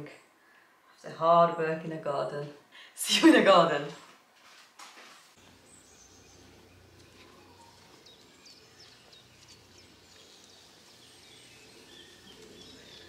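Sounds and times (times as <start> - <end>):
bird chirping: 5.4 - 13.0.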